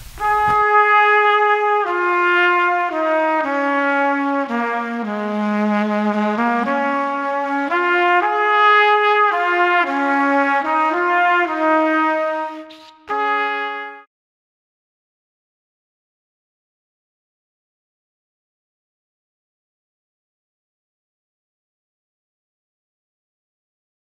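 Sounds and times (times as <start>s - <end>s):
brass instrument slow melody: 0.0s - 14.1s.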